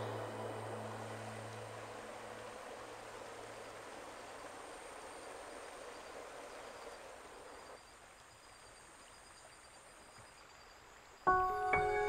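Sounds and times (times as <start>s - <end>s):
soft outdoor hiss: 0.0s - 12.0s.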